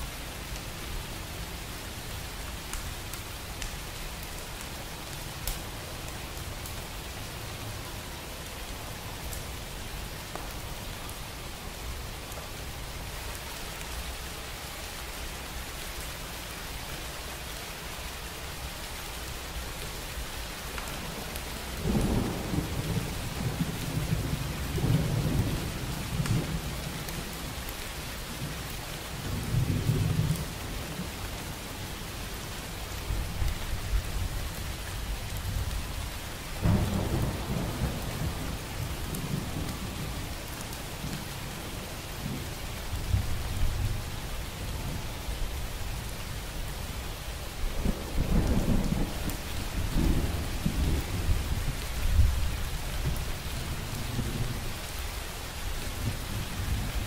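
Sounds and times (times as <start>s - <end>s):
steady rain: 0.0s - 57.0s
thunder rumbling: 36.6s - 40.2s.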